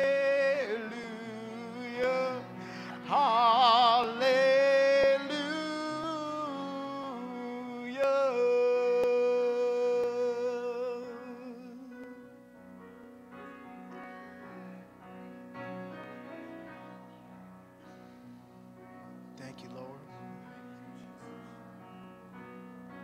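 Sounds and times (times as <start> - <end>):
man singing: 0.0 - 12.3, 19.4 - 21.6
soft keyboard accompaniment: 0.0 - 23.0.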